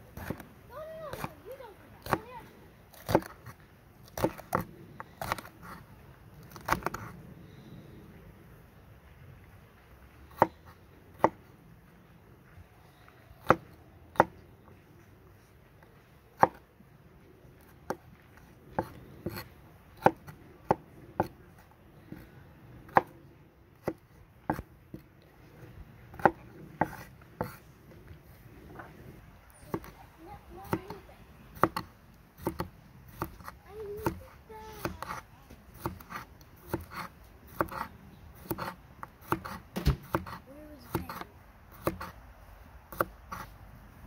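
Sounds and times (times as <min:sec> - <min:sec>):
knife chopping on wooden board: 0:02.9 - 0:03.5, 0:04.1 - 0:05.8, 0:10.3 - 0:10.6, 0:11.2 - 0:11.4, 0:13.4 - 0:14.3, 0:16.4 - 0:16.6, 0:18.8 - 0:21.4, 0:22.9 - 0:23.1, 0:23.8 - 0:25.0, 0:26.1 - 0:27.6, 0:29.7 - 0:29.9, 0:30.6 - 0:31.0, 0:31.6 - 0:35.2, 0:35.8 - 0:42.2, 0:42.9 - 0:43.5.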